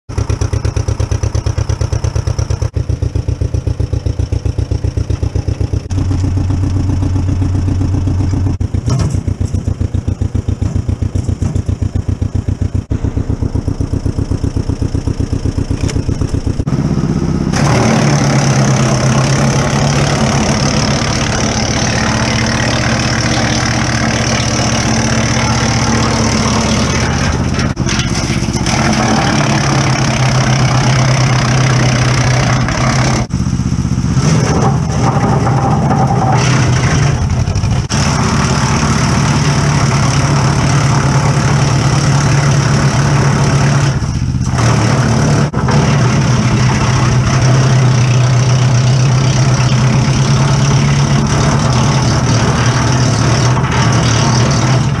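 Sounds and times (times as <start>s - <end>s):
tractor engine pulsing: 0.1s - 55.0s.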